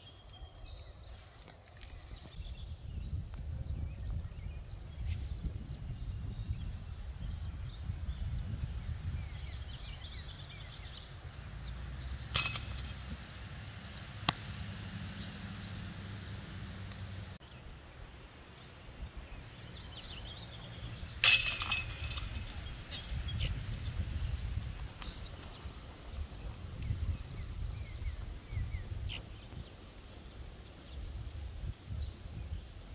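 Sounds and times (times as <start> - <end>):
wind on microphone: 2.3 - 10.9, 22.3 - 32.9
disc hitting metal chains: 12.3 - 13.6, 21.2 - 24.0
chains jingling: 12.4 - 13.5, 21.2 - 23.9.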